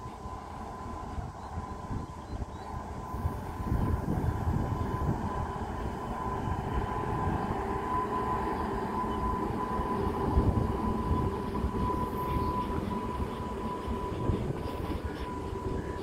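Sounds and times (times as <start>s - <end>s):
thin steady whine: 0.0s - 16.0s
train wheels rumbling on rail: 0.0s - 16.0s.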